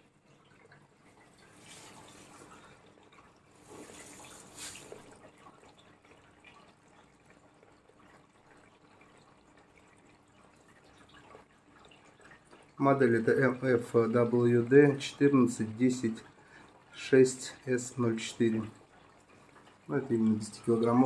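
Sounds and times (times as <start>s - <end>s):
water running and dripping: 0.0s - 21.0s.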